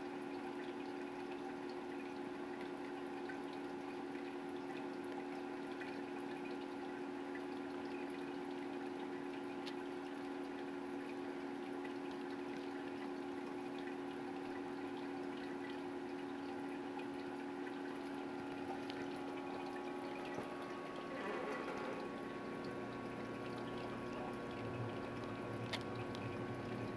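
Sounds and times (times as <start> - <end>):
pump hum: 0.0 - 26.9
water trickling and dripping: 0.0 - 26.9.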